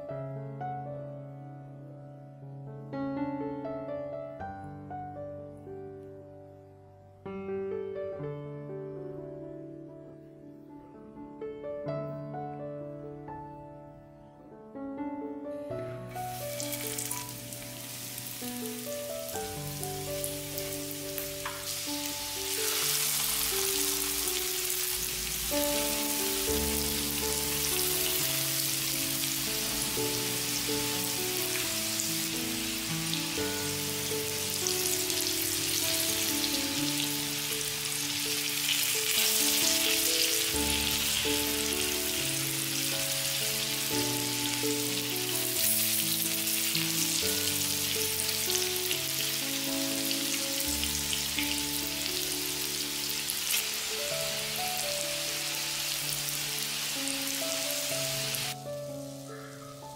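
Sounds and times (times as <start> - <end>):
piano music: 0.0 - 59.9
food sizzling in hot oil: 16.2 - 59.2.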